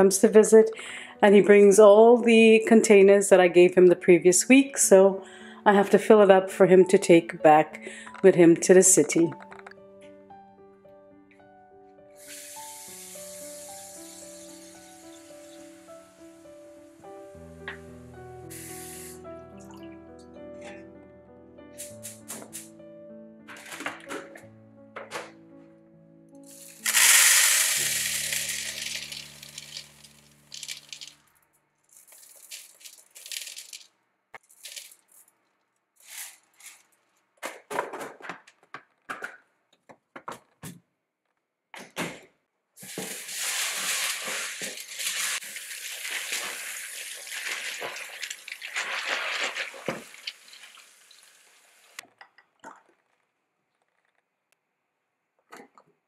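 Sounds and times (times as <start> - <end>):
dried peas pouring into bowl: 26.5 - 31.2, 31.9 - 35.2, 43.1 - 51.2
plastic containers clinking: 26.8 - 31.1, 32.0 - 33.8.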